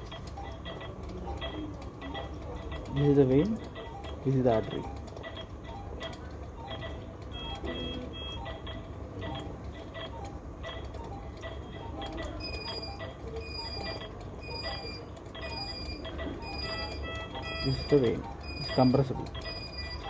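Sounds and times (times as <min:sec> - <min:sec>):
two-tone beep: 0:07.3 - 0:08.7, 0:12.4 - 0:20.0.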